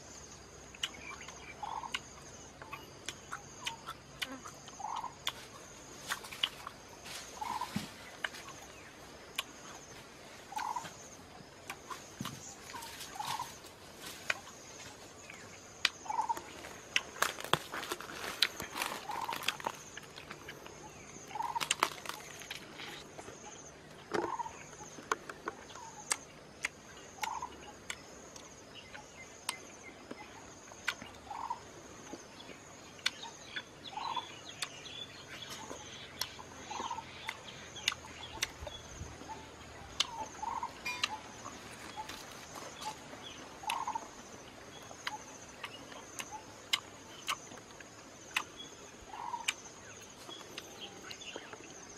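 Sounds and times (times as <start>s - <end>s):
high insect drone: 0.0s - 51.9s
person eating honeycomb: 15.8s - 24.4s.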